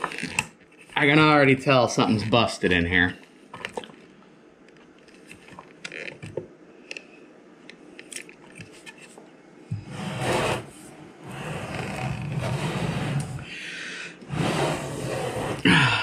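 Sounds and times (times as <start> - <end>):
faint clicks and rustles: 3.2 - 9.3
speaker cabinet scraping on desk: 9.8 - 13.5, 14.2 - 15.7.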